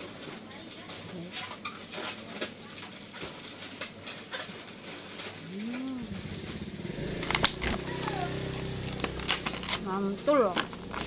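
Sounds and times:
woman humming hmm: 0:05.4 - 0:06.2.

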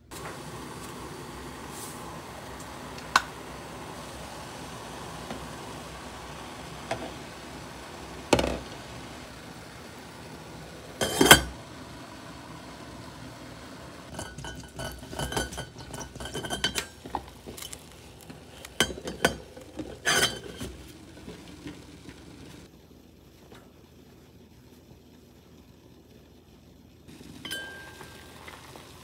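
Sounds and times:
pot lid clinking on saucepan: 0:11.0 - 0:11.5, 0:27.4 - 0:28.2
lid rattling on pot rim: 0:14.1 - 0:17.2.

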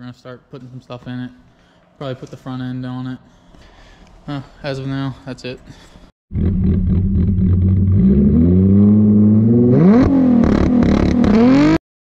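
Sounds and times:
car engine revving: 0:06.3 - 0:11.8.

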